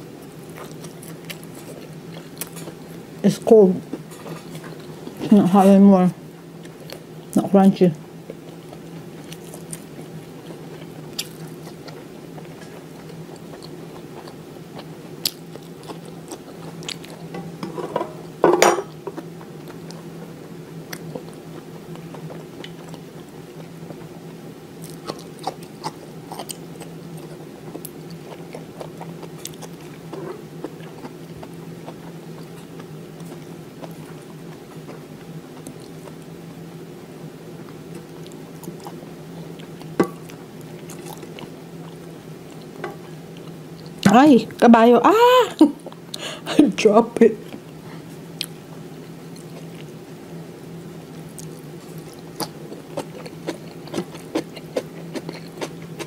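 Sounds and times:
steady low hum: 0.0 - 56.0
person chewing food: 0.3 - 3.0, 8.2 - 17.6, 20.9 - 24.1, 24.8 - 36.3, 37.6 - 44.0, 47.4 - 50.0, 51.1 - 56.0.

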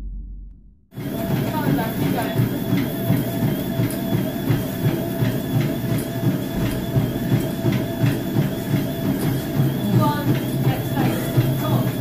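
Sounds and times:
running feet on treadmill belt: 0.9 - 12.0
treadmill motor hum and whine: 0.9 - 12.0.

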